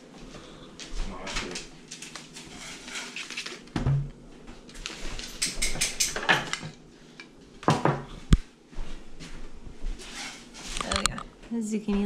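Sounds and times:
objects clattering on glass table: 5.0s - 6.8s.

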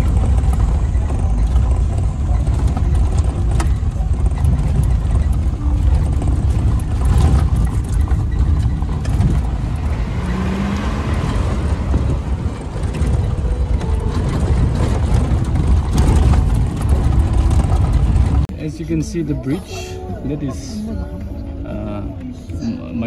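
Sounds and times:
knocks and rattles: 0.0s - 18.5s
vehicle engine and road rumble: 0.0s - 23.0s.

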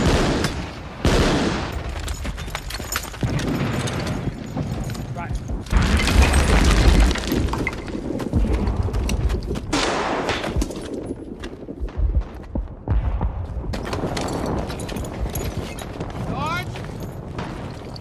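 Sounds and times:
rifle and machine-gun fire: 0.0s - 2.0s, 5.7s - 16.5s
heavy explosions: 3.2s - 18.0s.

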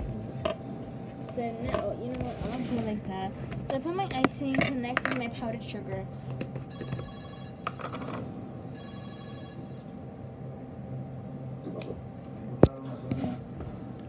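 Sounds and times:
steady low hum: 0.0s - 14.0s
electronic ringing tones: 6.7s - 7.9s, 8.7s - 9.9s.

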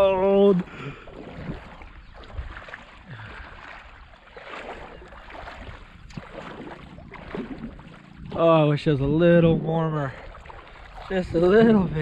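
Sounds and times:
water sloshing around wading person: 0.0s - 12.0s.

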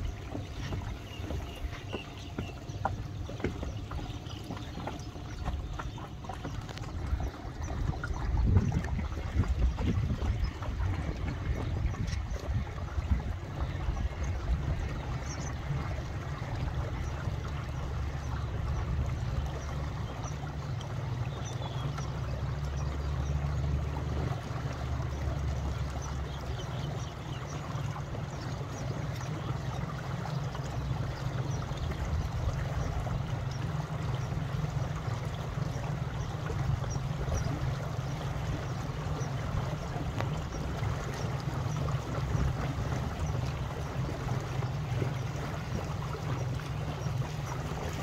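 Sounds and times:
wind buffeting microphone: 0.0s - 20.6s
wind-rippled water: 0.0s - 48.0s.

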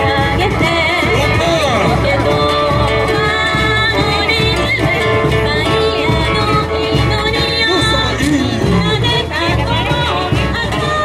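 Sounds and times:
bass drums: 0.0s - 11.0s
person singing: 0.0s - 11.0s
samba band playing: 0.0s - 11.0s.

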